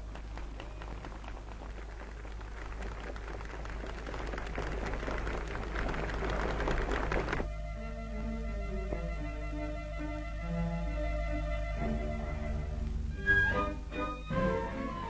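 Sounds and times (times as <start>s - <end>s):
crowd applauding: 0.0s - 7.4s
music: 7.4s - 15.0s.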